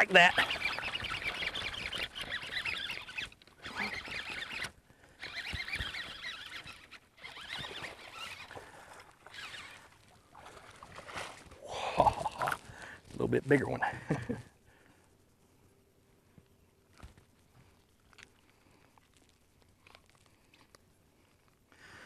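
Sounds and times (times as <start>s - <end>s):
fishing reel noise: 0.0s - 11.6s
fish splashing: 0.2s - 12.9s.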